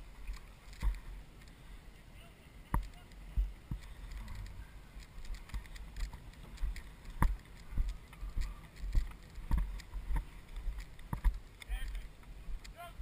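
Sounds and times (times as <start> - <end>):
footsteps on dry dirt: 2.7 - 13.0.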